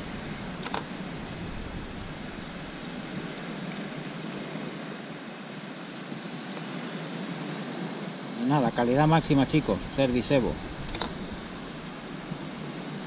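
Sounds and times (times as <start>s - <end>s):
wind on microphone: 0.0s - 5.1s, 8.8s - 13.0s
sea surf: 0.0s - 13.0s.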